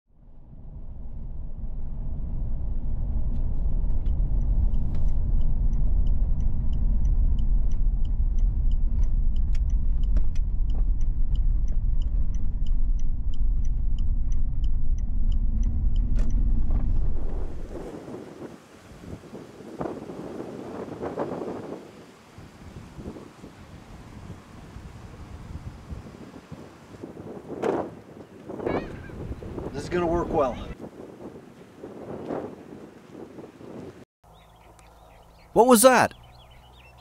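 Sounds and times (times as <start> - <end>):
engine and road noise in cab: 0.3 - 17.9
turn signal ticking: 3.8 - 17.5.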